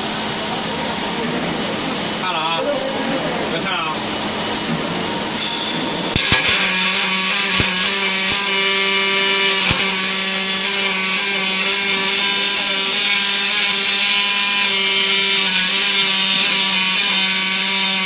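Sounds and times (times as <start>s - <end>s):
steady machine hum: 0.0s - 17.0s
welding arc cracks: 5.4s - 18.0s
welding arc hissing: 5.4s - 18.0s.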